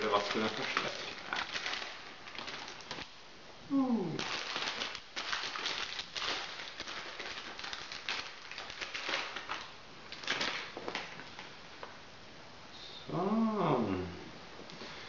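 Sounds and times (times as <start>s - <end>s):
plastic bag crinkling: 0.0s - 3.2s, 4.0s - 11.6s.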